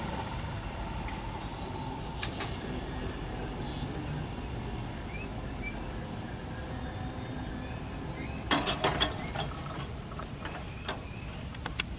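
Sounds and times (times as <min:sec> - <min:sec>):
steady low rumble: 0:00.0 - 0:08.1
crossing gate arms clanking: 0:08.0 - 0:11.1.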